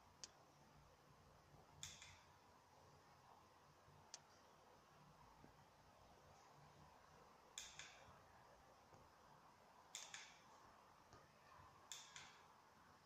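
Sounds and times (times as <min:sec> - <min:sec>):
soft double clicks: 0:01.8 - 0:02.2, 0:09.9 - 0:10.4.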